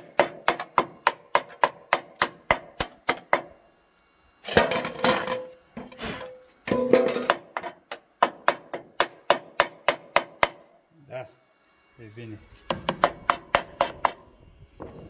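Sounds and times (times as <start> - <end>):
hammer striking steel: 0.0 - 3.6, 6.7 - 10.7, 12.7 - 14.2.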